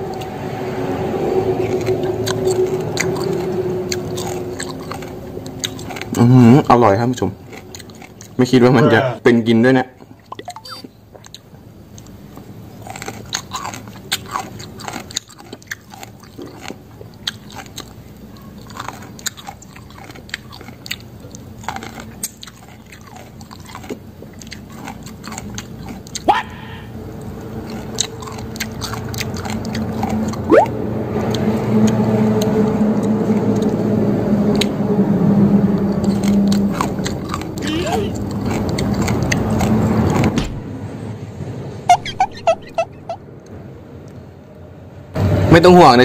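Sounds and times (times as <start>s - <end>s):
vehicle engine hum: 0.0s - 9.2s, 26.2s - 46.0s
chewing and crunching vegetables: 0.0s - 40.4s.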